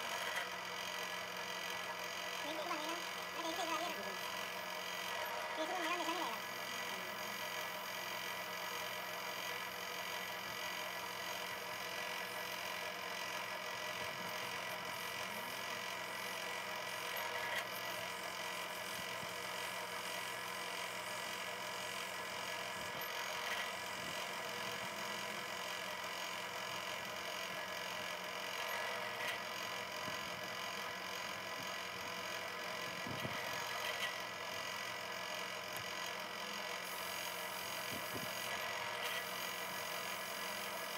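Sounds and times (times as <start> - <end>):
drill press boring into metal: 0.0 - 40.9.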